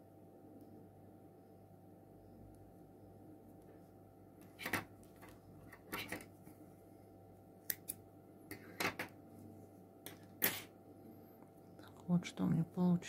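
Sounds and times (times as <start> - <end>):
scissors snipping yarn: 7.6 - 8.0.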